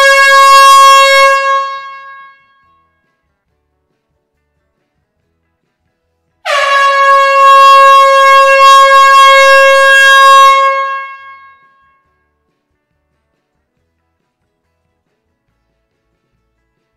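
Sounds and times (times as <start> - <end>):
air horn long blast: 0.0 - 2.7, 6.4 - 12.0.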